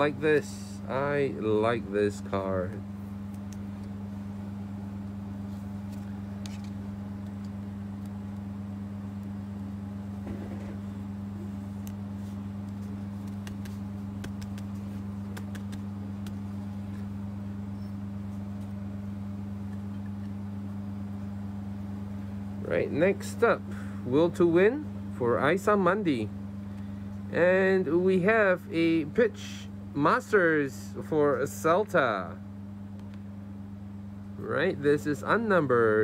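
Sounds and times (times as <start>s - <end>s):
low electrical hum: 0.0s - 36.0s
trading cards clicking and rustling: 5.8s - 8.2s, 12.6s - 17.1s.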